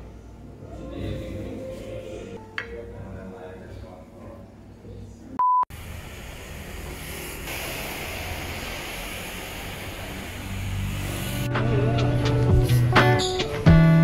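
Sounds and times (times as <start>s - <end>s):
traffic rushing: 5.8s - 13.6s
music with a beat: 11.5s - 14.0s.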